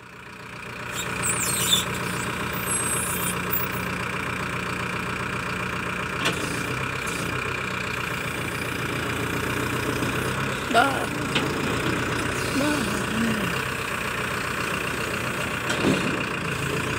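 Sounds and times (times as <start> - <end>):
diesel engine running under load: 0.0 - 16.9
high squeaks: 0.9 - 3.8.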